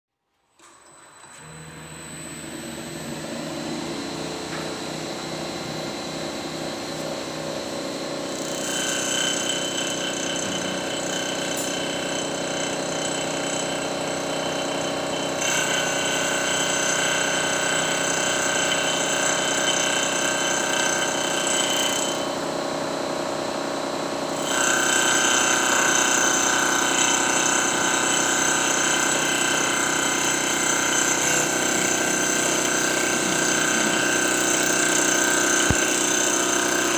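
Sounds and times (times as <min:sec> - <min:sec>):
lathe whine cutting wood: 0:01.3 - 0:22.4, 0:24.4 - 0:36.9
lathe motor hum: 0:24.3 - 0:36.9.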